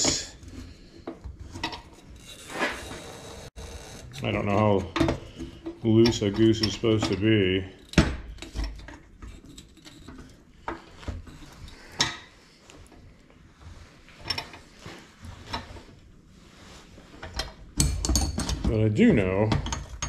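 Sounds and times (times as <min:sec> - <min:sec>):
metal tools clicking and scraping: 0:01.4 - 0:12.2.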